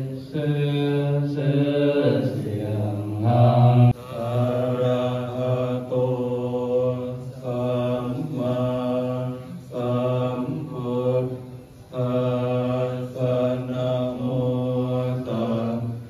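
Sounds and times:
monks chanting in monotone: 0.0 - 16.0.

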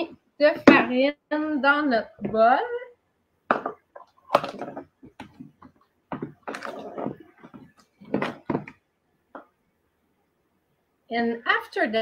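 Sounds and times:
measuring cup and bowl knocking: 3.5 - 8.8.

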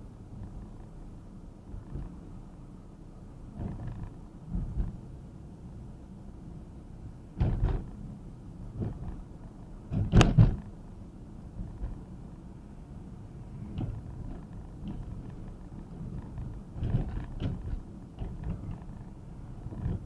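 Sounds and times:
car road noise rumble: 0.0 - 20.0
knocks and thumps: 7.4 - 7.9, 8.8 - 9.2, 9.9 - 10.6, 16.1 - 19.0, 19.7 - 20.0.

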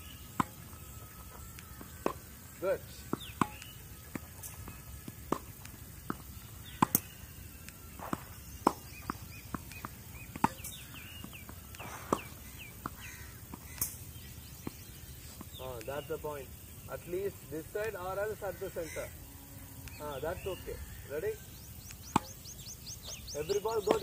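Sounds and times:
tennis balls hit with racket: 0.0 - 19.1, 19.8 - 24.0
balls bouncing on clay court: 0.3 - 13.8, 14.4 - 16.2, 21.2 - 24.0.

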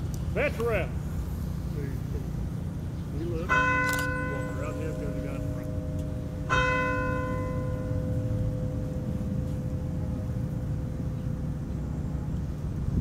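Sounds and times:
low outdoor rumble: 0.0 - 13.0
bell ringing: 3.4 - 10.1.

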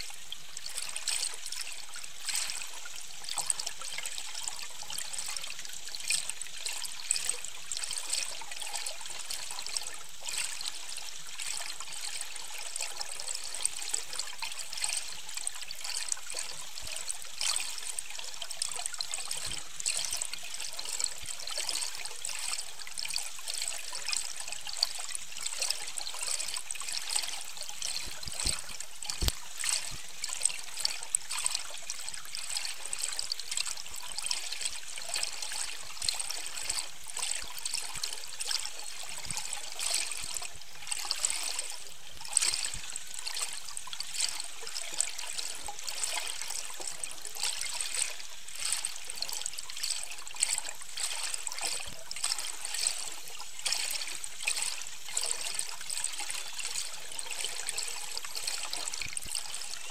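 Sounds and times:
underwater clicks: 28.2 - 29.9.

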